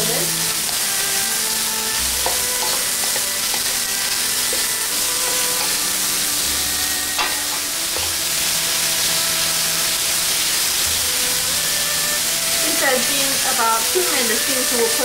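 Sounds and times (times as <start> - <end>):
vegetables sizzling in a wok: 0.0 - 15.0
spatula knocking wok: 2.0 - 6.2, 7.1 - 9.2.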